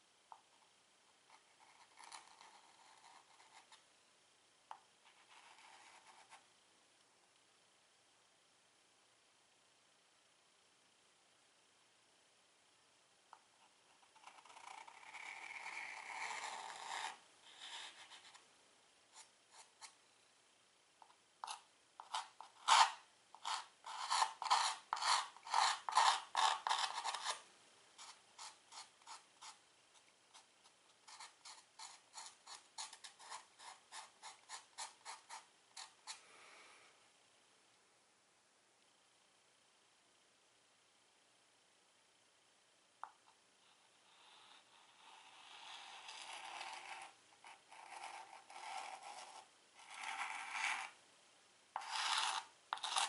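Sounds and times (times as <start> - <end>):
chalk scratching on chalkboard: 21.4 - 27.4, 28.0 - 29.6, 30.4 - 36.2, 44.2 - 50.9, 51.8 - 53.0.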